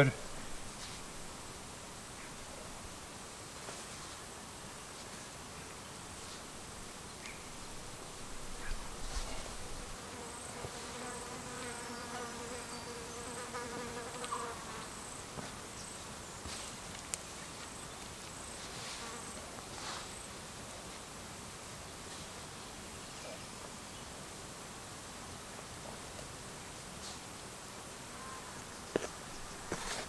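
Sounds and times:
insect buzzing: 0:06.2 - 0:15.9.

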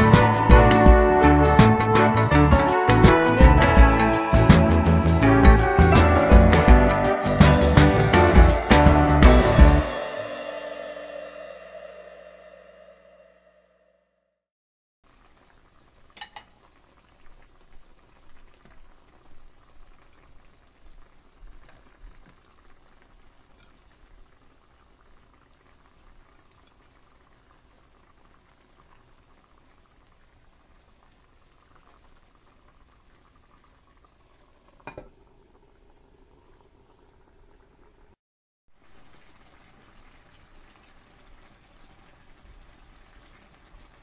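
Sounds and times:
pot simmering and bubbling: 0:15.0 - 0:38.2, 0:38.8 - 0:44.0.

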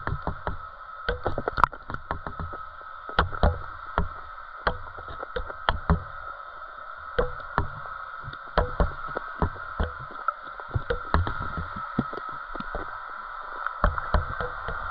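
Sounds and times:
underwater knocks and clicks: 0:00.0 - 0:06.3, 0:07.1 - 0:14.9
steady hum: 0:00.0 - 0:14.9.

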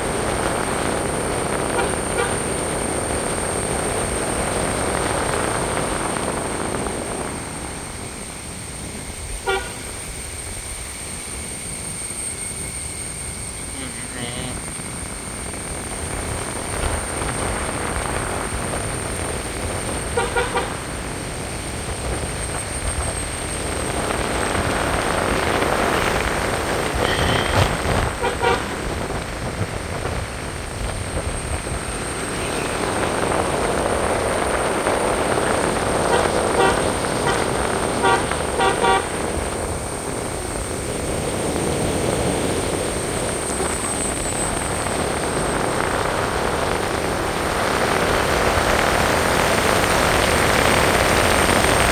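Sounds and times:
car road and tyre noise: 0:00.0 - 0:51.9
car horn honks: 0:01.7 - 0:02.5, 0:09.4 - 0:09.9, 0:20.1 - 0:20.8, 0:27.0 - 0:28.8, 0:36.0 - 0:39.2.

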